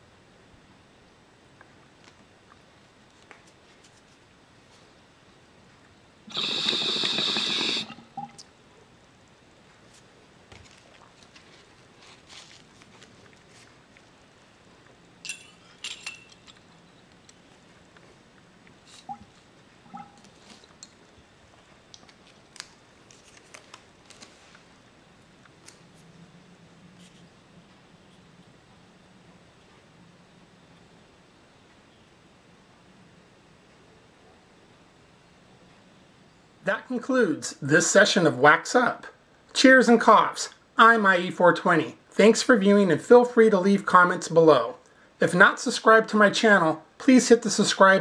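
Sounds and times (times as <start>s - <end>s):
water pipe bubbling: 6.3s - 8.5s, 19.0s - 20.3s.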